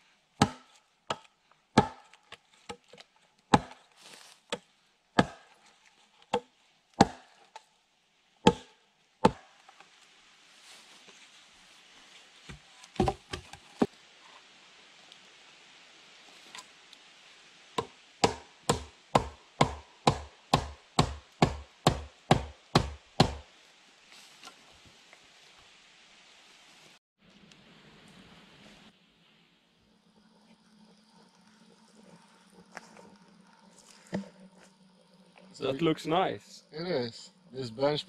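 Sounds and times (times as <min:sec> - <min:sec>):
axe chopping wood: 0:00.4 - 0:02.8, 0:03.5 - 0:03.8, 0:05.2 - 0:05.6, 0:06.3 - 0:07.4, 0:08.4 - 0:09.5, 0:17.8 - 0:23.4.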